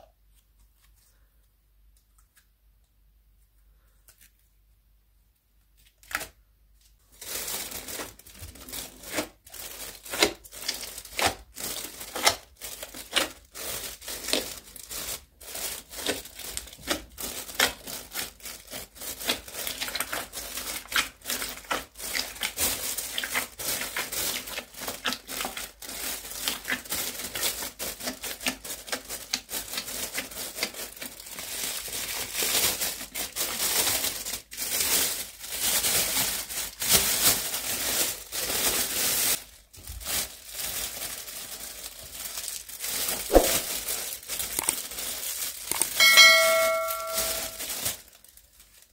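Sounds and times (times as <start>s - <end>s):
plastic bag crinkling: 7.0s - 48.9s
slime squishing: 7.2s - 32.4s, 40.0s - 46.0s.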